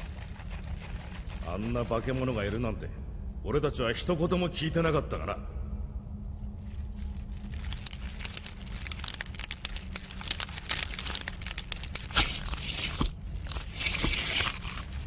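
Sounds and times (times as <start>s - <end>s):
wet crackling and clicking: 7.4s - 15.0s.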